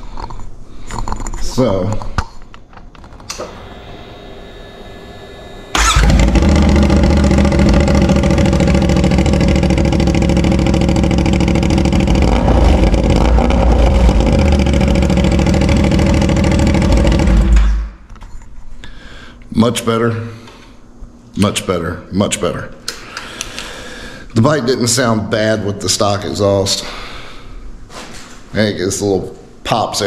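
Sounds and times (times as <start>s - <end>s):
motorcycle engine running: 3.0s - 17.9s.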